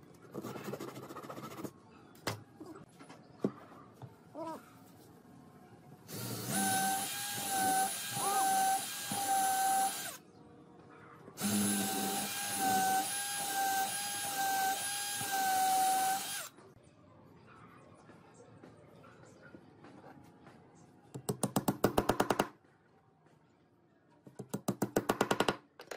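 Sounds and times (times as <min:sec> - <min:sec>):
cordless drill boring into wood: 0:06.1 - 0:10.2, 0:11.4 - 0:16.5.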